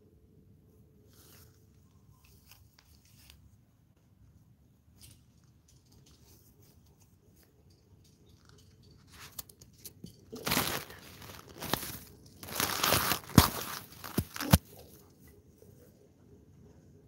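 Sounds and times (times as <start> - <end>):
dry grass and leaves crunching: 10.3 - 15.0.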